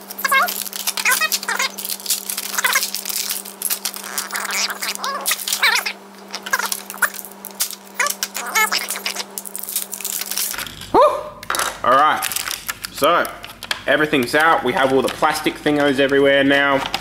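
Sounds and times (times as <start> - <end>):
knife cutting plastic packaging: 0.0 - 10.7
plastic crinkling and crackling: 0.0 - 17.0
steady low hum: 0.0 - 17.0
blade squeaking on plastic: 0.2 - 7.2.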